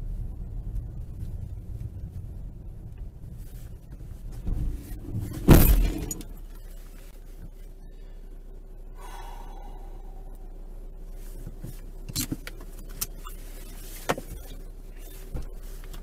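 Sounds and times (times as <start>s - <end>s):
car driving rumble: 0.0s - 16.0s
steady hum: 3.2s - 13.8s
car crash and windscreen shattering: 4.5s - 6.6s
faint tone: 8.9s - 11.2s.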